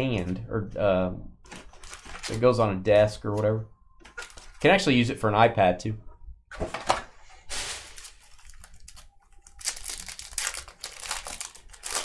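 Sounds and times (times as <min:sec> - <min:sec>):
foil wrapper crinkling and tearing: 0:07.5 - 0:12.0.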